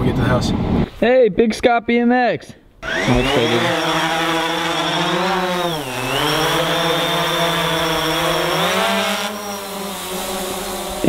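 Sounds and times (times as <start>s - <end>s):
drone propellers buzzing: 2.8s - 11.0s.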